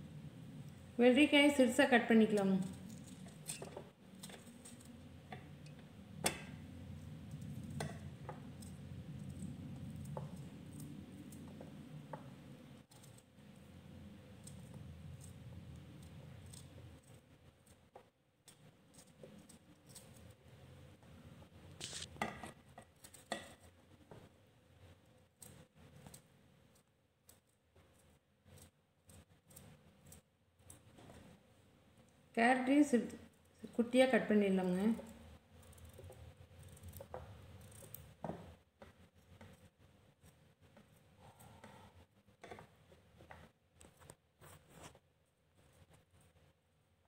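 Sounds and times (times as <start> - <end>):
low steady hum: 0.0 - 47.0
soft handling noise: 36.0 - 46.6.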